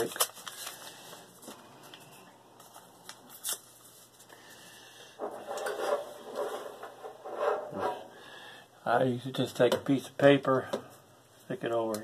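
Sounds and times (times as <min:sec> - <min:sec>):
paper rustling and crinkling: 0:00.0 - 0:01.6.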